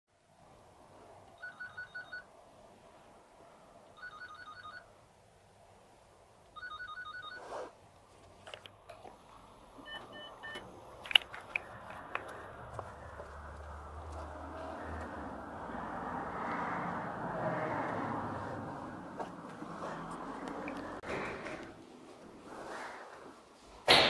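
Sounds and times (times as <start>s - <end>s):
sharp clicks: 11.0s - 12.4s.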